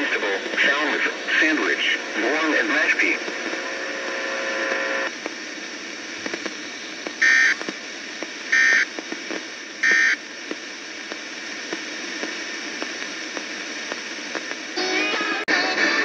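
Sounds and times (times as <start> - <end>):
radio static hiss: 0.0 - 16.0
buzzy data tone bursts: 6.8 - 7.6, 8.5 - 8.9, 9.8 - 10.2.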